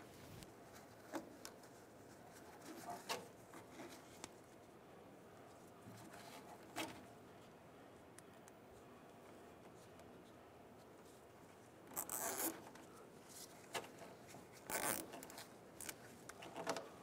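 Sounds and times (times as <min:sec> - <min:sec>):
zip ties ratcheting: 0:11.9 - 0:12.6, 0:14.7 - 0:15.2.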